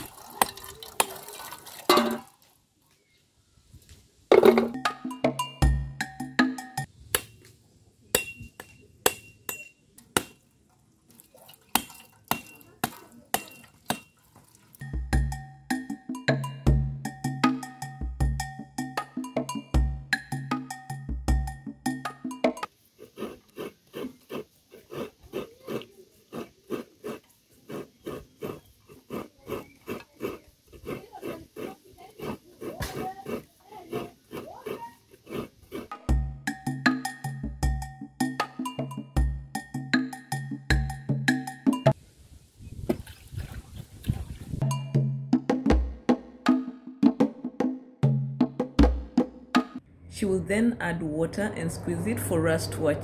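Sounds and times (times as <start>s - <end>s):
machete striking coconut: 7.1s - 7.5s, 8.2s - 10.4s, 11.8s - 14.1s
coconut grated by hand: 23.0s - 35.9s.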